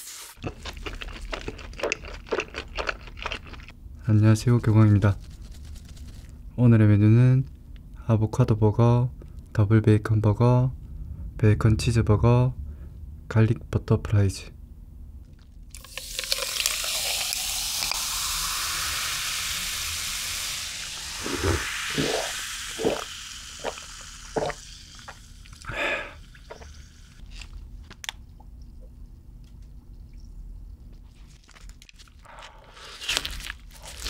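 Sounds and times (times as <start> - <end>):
soda fizzing over ice: 15.8 - 27.2.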